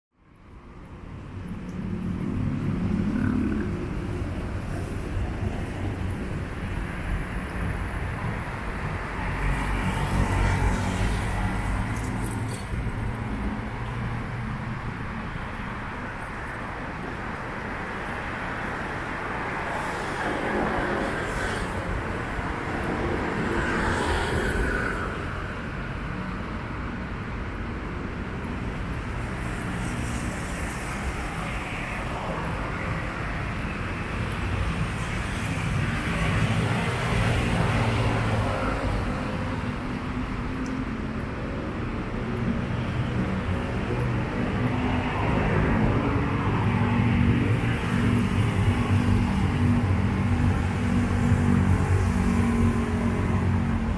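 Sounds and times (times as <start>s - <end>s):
traffic rumble: 0.4s - 53.9s
cars passing: 0.5s - 53.9s
motorcycles passing: 2.0s - 5.1s.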